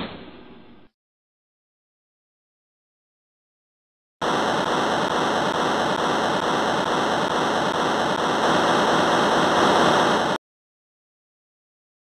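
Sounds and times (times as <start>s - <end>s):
loud static hiss: 4.2s - 10.4s.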